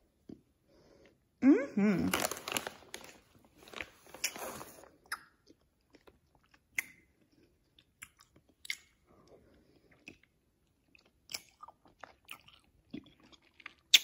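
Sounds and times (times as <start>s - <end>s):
person chewing: 2.1s - 14.0s
mouth clicks and smacks: 5.0s - 5.6s, 7.8s - 9.0s.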